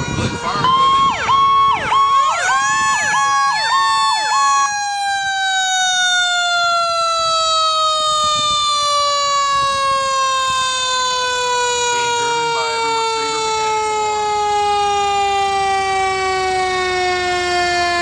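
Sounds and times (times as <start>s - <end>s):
siren cycling rapidly: 0.0s - 18.0s
siren wailing: 0.0s - 18.0s.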